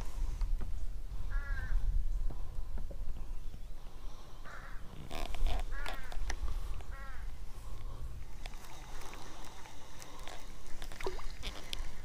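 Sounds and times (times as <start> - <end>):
crow cawing: 1.3 - 1.8, 4.4 - 4.8, 6.9 - 7.3.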